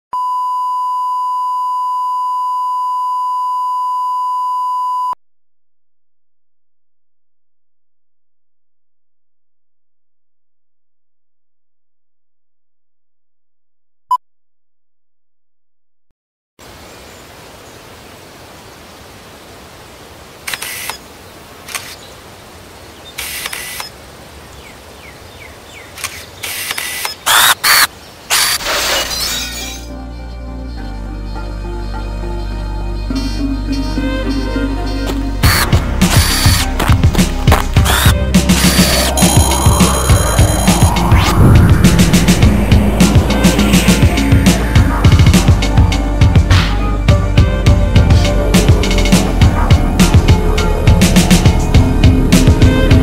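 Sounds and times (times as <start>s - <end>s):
camera shutter clicks: 20.5s - 21.0s, 21.7s - 22.0s, 23.2s - 23.9s, 26.0s - 28.6s, 35.5s - 36.7s
steady test tone: 37.9s - 45.1s.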